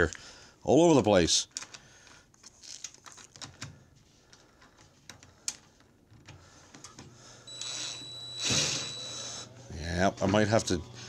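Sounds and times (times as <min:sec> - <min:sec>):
cordless drill whining: 0:07.5 - 0:11.0.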